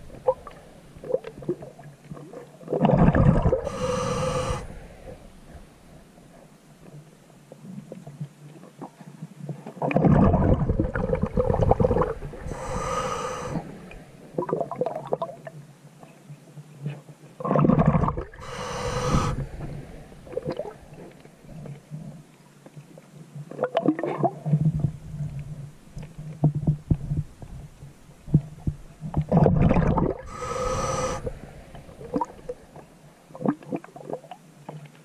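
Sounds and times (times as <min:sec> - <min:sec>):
exhaled bubbles rumbling: 0:00.0 - 0:06.4, 0:09.8 - 0:15.5, 0:17.4 - 0:22.2, 0:23.6 - 0:34.4
hissing regulator inhalation: 0:03.6 - 0:05.2, 0:12.4 - 0:14.1, 0:18.4 - 0:20.8, 0:30.2 - 0:32.4.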